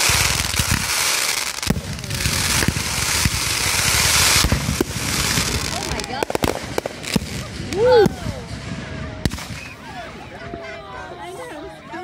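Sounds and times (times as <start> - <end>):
firework hissing rush: 0.0 - 8.5
firework sharp crack: 0.0 - 9.9.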